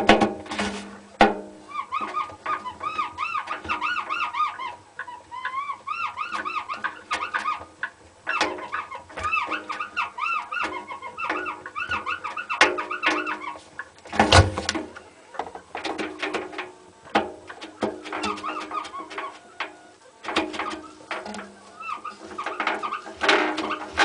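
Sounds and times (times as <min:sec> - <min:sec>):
washing machine drum squeaking: 0:17.2 - 0:24.0.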